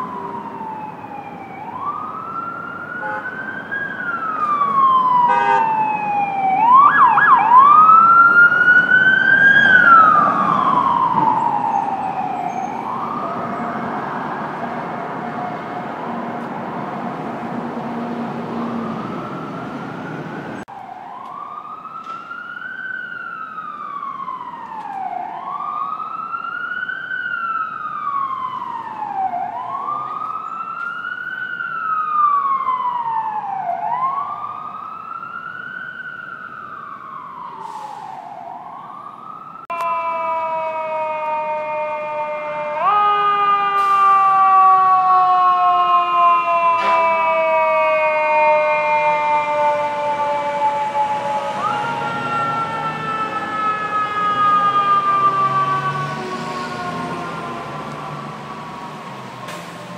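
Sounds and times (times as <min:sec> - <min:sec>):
quicker siren sweeps: 0:00.0 - 0:59.9
siren wailing: 0:00.0 - 0:59.9
street traffic noise: 0:00.0 - 0:59.9.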